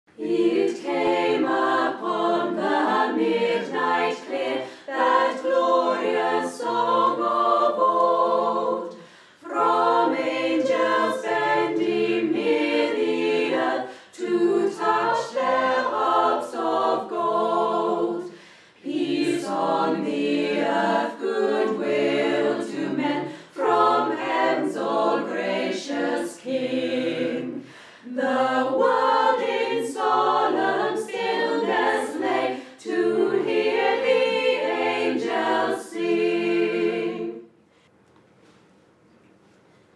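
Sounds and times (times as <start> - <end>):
choir singing a cappella: 0.1 - 37.6.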